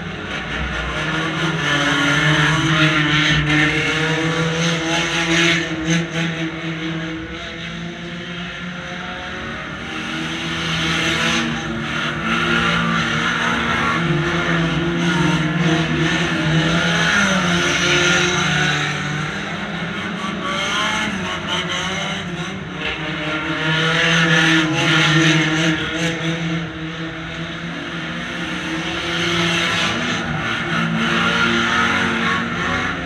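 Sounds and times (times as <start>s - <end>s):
car engines revving: 0.0s - 33.0s.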